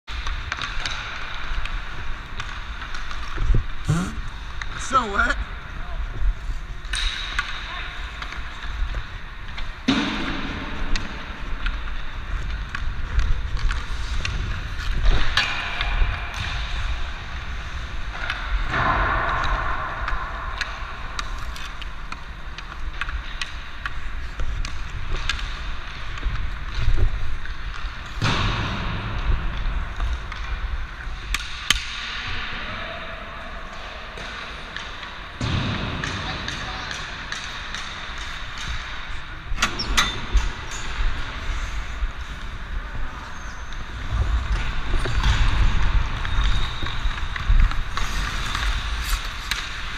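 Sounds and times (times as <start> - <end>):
hockey stick clicking on puck: 0.1 - 3.4, 18.2 - 28.0, 30.0 - 32.2, 36.0 - 39.0, 45.1 - 49.9
skate blades scraping on ice: 41.1 - 49.9.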